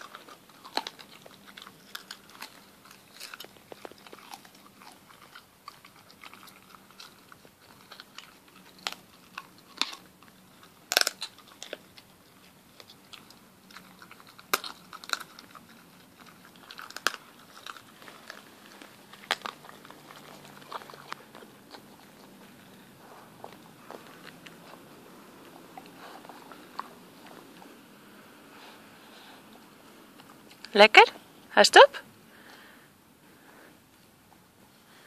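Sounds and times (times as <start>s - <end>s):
dog crunching bone: 0.0s - 30.8s.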